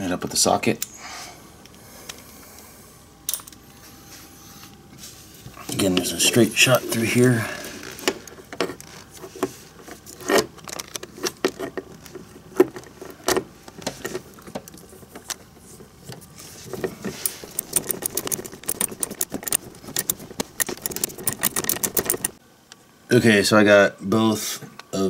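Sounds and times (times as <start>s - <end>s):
metal clinks and knocks: 17.2s - 22.4s
socket wrench ratchet clicking: 17.3s - 22.4s.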